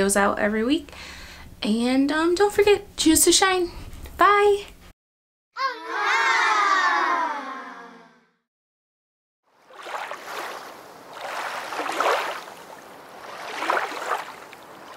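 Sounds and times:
rushing water-like noise: 9.6s - 14.9s.

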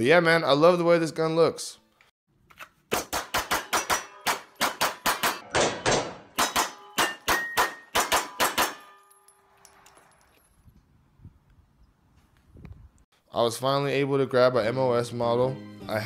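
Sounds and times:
handgun shots: 2.9s - 9.0s
steel targets clanging: 3.5s - 10.4s.

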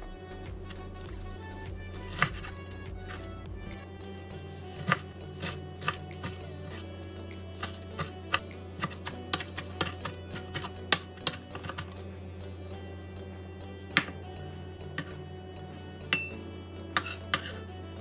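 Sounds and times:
background music: 0.0s - 18.0s
knife chopping on cutting board: 1.9s - 3.8s, 4.7s - 6.8s, 7.6s - 12.0s, 13.9s - 14.2s, 15.0s - 15.2s, 17.0s - 17.6s.

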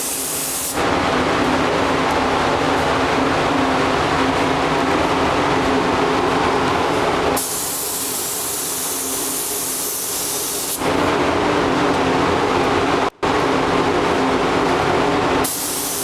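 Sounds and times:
paint spray gun hissing: 0.0s - 0.8s, 7.4s - 10.8s, 15.4s - 16.0s
mechanical drone with low hum: 0.0s - 16.0s.

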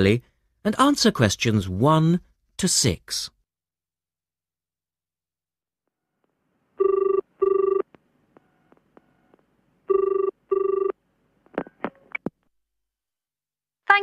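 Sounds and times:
telephone ringing: 6.8s - 11.0s.

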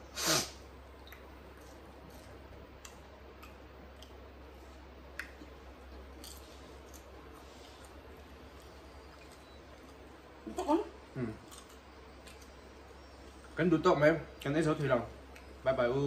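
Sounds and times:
chewing crisp snacks: 5.1s - 12.6s.

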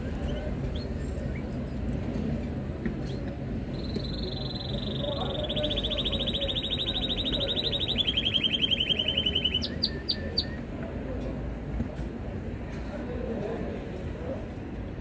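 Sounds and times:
canary chirps: 3.1s - 10.6s
canary trilling: 3.7s - 10.6s.

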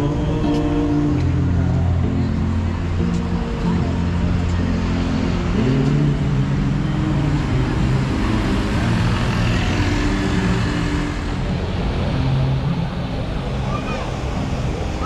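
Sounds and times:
vehicle engines passing: 0.0s - 15.0s
tyres hissing on wet road: 7.8s - 12.6s.

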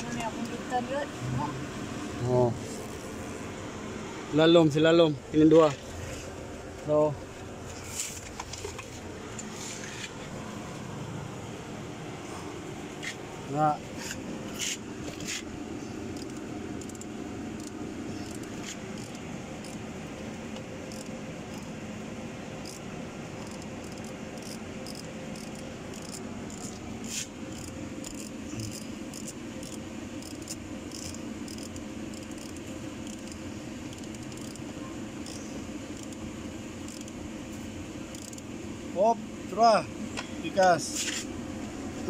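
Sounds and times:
ratchet wrench clicking: 16.1s - 19.8s, 20.6s - 21.7s, 22.6s - 36.2s, 36.8s - 37.2s, 38.1s - 38.5s.

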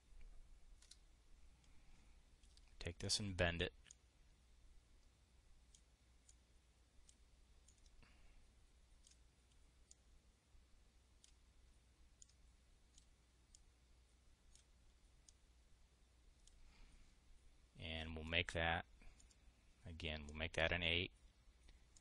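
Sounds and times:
low steady hum: 0.0s - 22.0s
computer mouse clicks: 0.8s - 1.0s, 2.4s - 2.8s, 7.0s - 8.1s, 9.0s - 10.0s, 11.2s - 11.4s, 12.2s - 13.6s, 19.1s - 19.4s.

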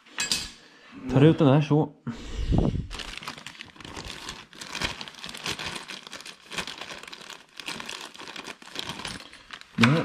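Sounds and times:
plastic bag crinkling: 2.8s - 10.0s.

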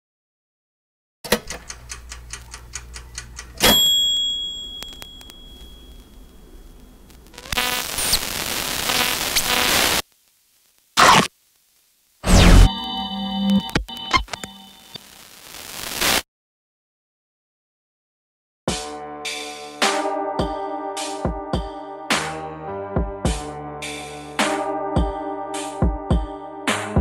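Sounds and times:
quick ticks: 1.5s - 3.6s
sharp ringing ding: 3.6s - 6.1s
static hiss with buzz: 4.7s - 16.2s
short glitch bursts: 7.3s - 10.0s, 11.0s - 11.3s, 12.2s - 12.8s.

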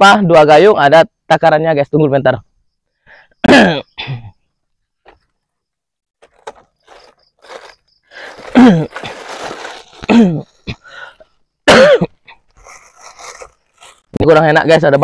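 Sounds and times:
man coughing hoarsely: 3.4s - 4.4s, 8.5s - 8.9s, 10.0s - 11.0s, 11.6s - 12.3s
faint rustles and clicks: 6.2s - 10.8s.

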